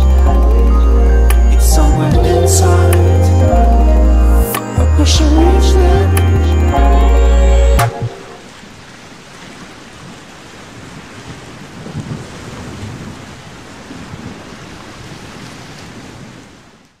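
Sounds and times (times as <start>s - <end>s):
low rumbles: 0.0s - 8.2s
rushing ambient noise: 0.0s - 8.5s.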